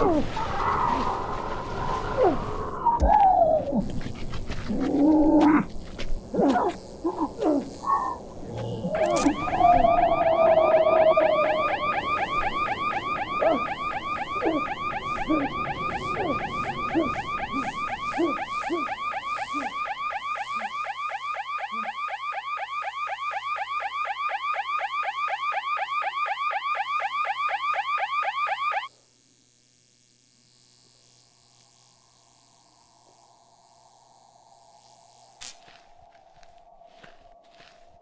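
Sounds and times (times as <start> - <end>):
electronic alarm chirping: 8.9 - 28.9.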